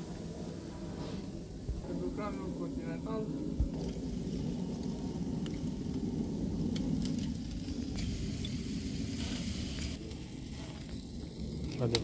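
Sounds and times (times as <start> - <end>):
low rumble: 0.0 - 11.9
food sizzling on a grill: 7.6 - 12.0.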